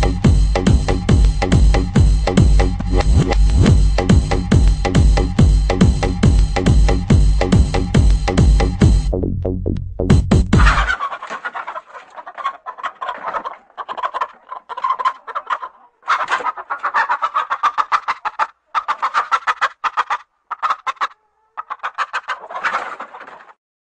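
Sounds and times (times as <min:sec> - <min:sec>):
electronic music with a beat: 0:00.0 - 0:10.8
chicken clucking: 0:10.6 - 0:23.6.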